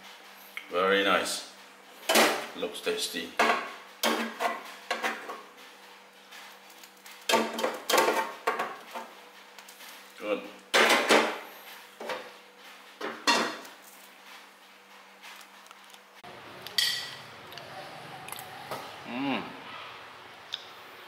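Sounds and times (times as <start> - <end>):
crockery and pots clattering: 13.0 - 13.7.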